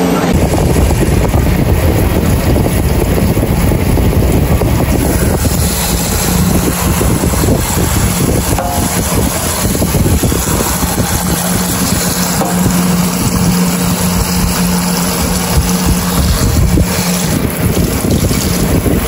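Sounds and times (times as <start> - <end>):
water splashing into metal pot: 5.0 - 19.0.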